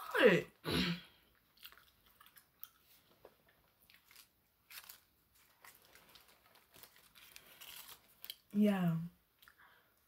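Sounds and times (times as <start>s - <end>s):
chewing with mouth clicks: 1.3s - 5.0s.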